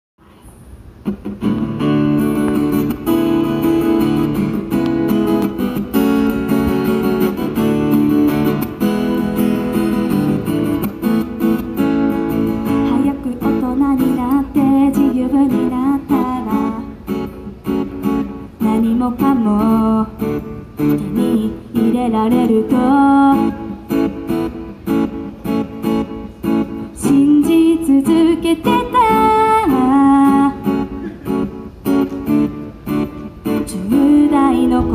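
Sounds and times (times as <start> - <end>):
acoustic guitar strumming: 1.0 - 34.9
woman singing: 12.7 - 17.0, 18.6 - 23.9, 27.0 - 30.9, 33.4 - 34.9.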